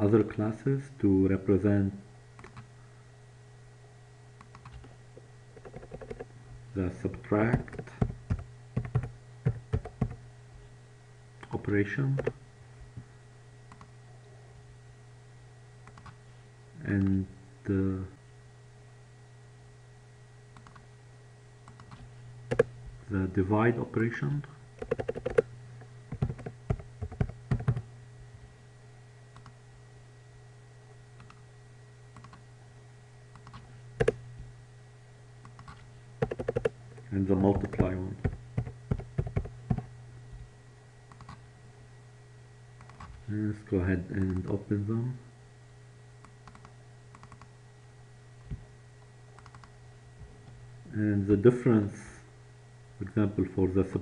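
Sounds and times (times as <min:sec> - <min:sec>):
steady low hum: 0:00.0 - 0:54.0
computer keyboard typing: 0:04.5 - 0:04.9, 0:05.6 - 0:06.3, 0:07.5 - 0:10.2, 0:15.9 - 0:16.2, 0:21.7 - 0:22.7, 0:24.8 - 0:25.5, 0:26.1 - 0:27.8, 0:33.3 - 0:34.2, 0:35.5 - 0:36.8, 0:37.5 - 0:39.9, 0:41.1 - 0:41.4, 0:46.4 - 0:47.5, 0:49.4 - 0:49.7.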